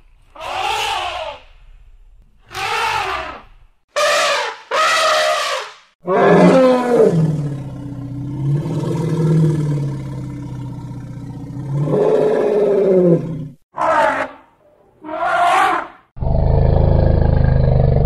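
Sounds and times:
elephant calls: 2.5 - 6.9.

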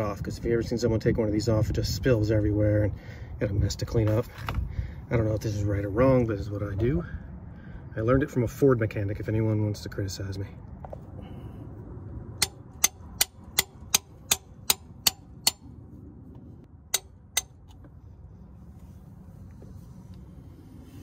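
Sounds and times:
hammer tapping metal punch: 12.4 - 15.6, 16.9 - 17.7.

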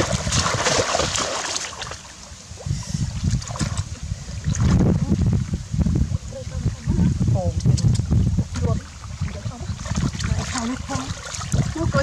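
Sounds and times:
muddy water splashing: 0.0 - 12.0
low rumbles: 2.4 - 12.0.

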